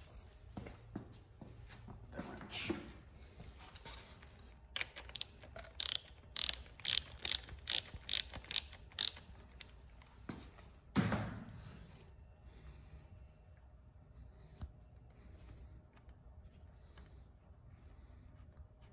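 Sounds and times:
ratchet wrench clicking: 0:04.8 - 0:10.1.

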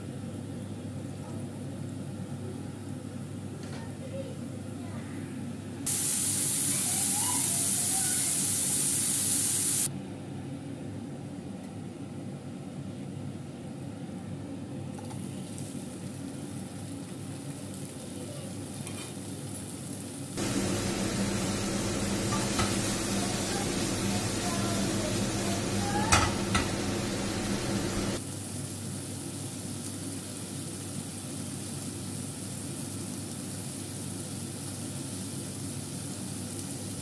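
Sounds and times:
mushrooms sizzling in a pan: 0:05.9 - 0:09.9, 0:15.8 - 0:37.0
loud steady noise with hum: 0:20.4 - 0:28.3.

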